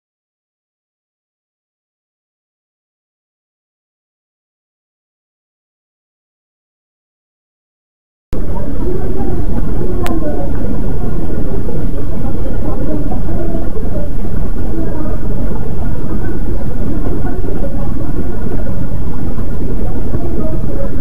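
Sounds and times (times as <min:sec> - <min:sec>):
faint crowd murmur: 0:08.4 - 0:21.0
train station low rumble: 0:08.4 - 0:21.0.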